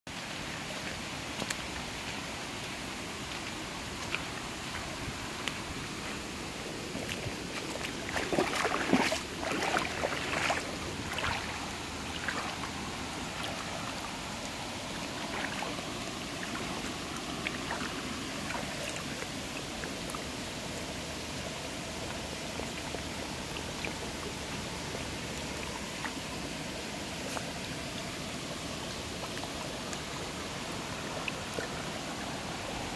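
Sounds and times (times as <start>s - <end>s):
running stream water: 0.1s - 32.9s
dog splashing through water: 7.0s - 13.7s.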